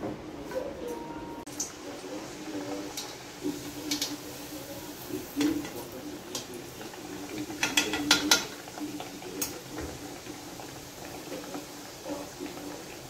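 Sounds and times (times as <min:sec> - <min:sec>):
food frying in oil: 0:01.5 - 0:13.0
tongs clicking against iron pan: 0:03.9 - 0:04.2, 0:05.4 - 0:06.6, 0:07.5 - 0:08.6, 0:09.4 - 0:09.6.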